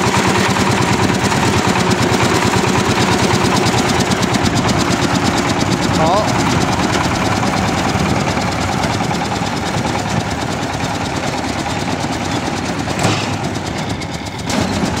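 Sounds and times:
round baler working: 0:00.0 - 0:15.0
tractor engine running: 0:00.0 - 0:15.0
sharp clunk of bale dropping: 0:13.0 - 0:13.4.

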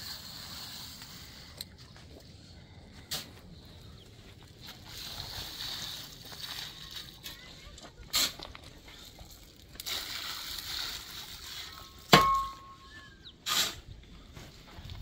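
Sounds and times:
shovel scraping wet cement: 0:00.0 - 0:01.9, 0:04.6 - 0:12.8, 0:13.4 - 0:13.9
shovel clanging on metal tray: 0:12.1 - 0:12.9.

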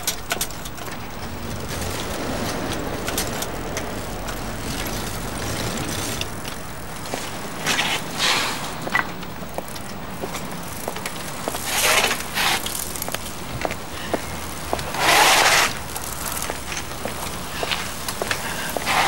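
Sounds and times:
low traffic rumble: 0:00.0 - 0:19.0
rushes of harsh noise: 0:00.8 - 0:09.5.

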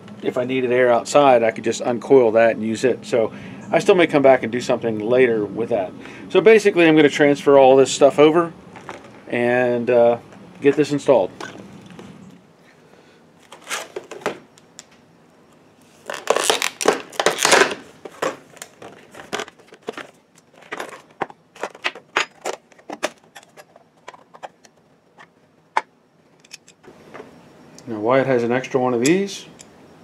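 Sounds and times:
plastic packaging crinkling: 0:13.4 - 0:14.9, 0:15.9 - 0:25.3.

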